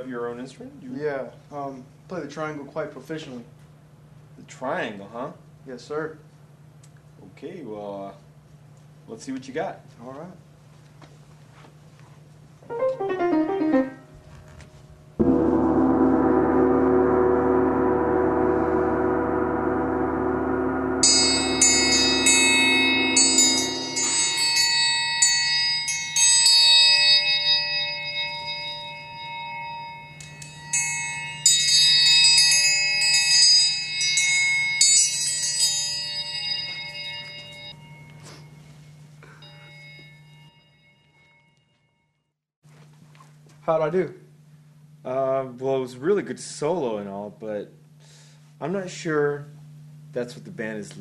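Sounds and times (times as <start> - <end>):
low drone with overtones: 15.2 - 25.8
metal triangle rolls: 21.0 - 38.2.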